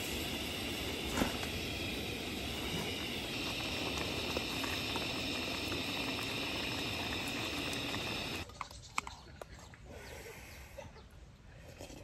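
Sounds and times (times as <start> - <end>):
high hiss: 0.0 - 8.4
steady hissing noise: 0.0 - 8.5.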